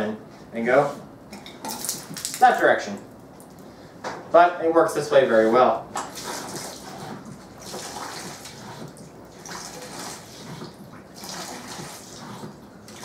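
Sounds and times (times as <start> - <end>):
water pouring into plastic sink: 1.7 - 2.6, 6.1 - 13.0.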